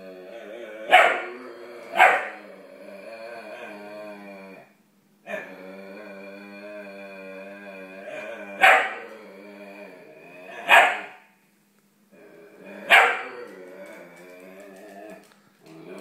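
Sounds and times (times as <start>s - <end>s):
dog growling: 0.0s - 11.2s, 12.1s - 16.0s
sharp dog barks: 10.7s - 11.2s.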